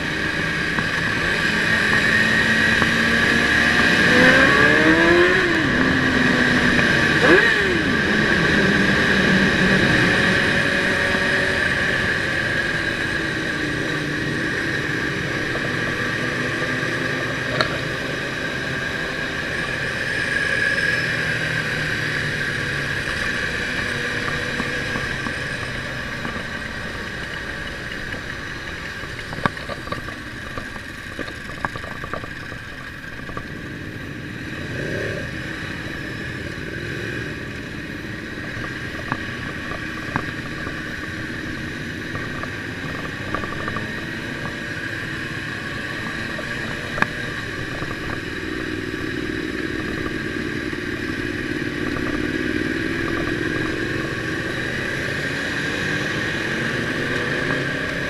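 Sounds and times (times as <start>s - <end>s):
motorcycle engine running: 0.0s - 58.0s
wind noise: 37.8s - 58.0s.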